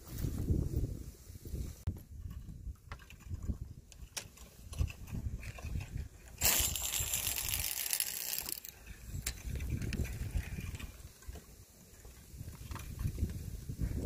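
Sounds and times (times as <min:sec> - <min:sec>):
fishing reel whirring: 0:06.4 - 0:08.8.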